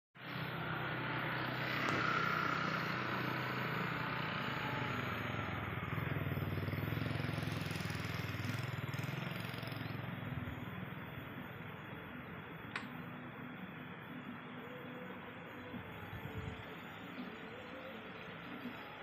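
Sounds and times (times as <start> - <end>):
vehicle engine running: 0.2 - 12.6.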